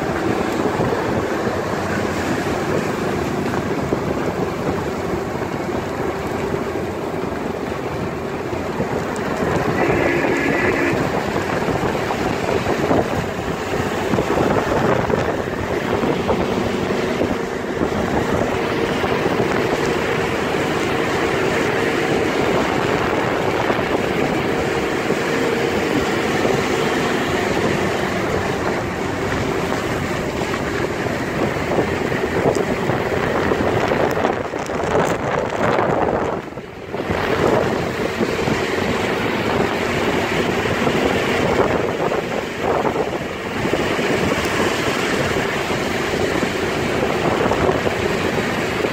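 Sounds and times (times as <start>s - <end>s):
heavy rain: 0.0s - 35.8s
tyres on wet road: 0.0s - 48.9s.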